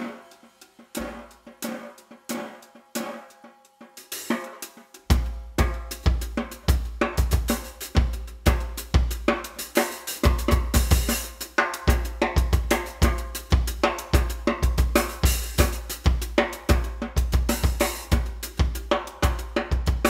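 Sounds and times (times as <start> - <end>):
cymbal and snare strikes: 0.0 - 20.0
bass drum beat: 5.0 - 20.0.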